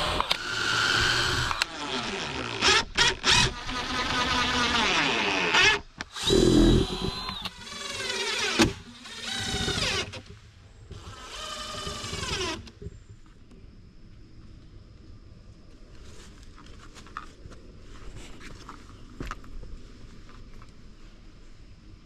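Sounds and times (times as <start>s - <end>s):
power tool running in bursts: 6.1s - 10.1s.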